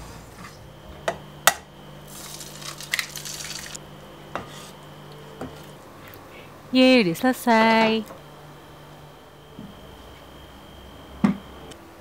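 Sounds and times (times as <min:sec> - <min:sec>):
egg sizzling: 0:02.1 - 0:03.8.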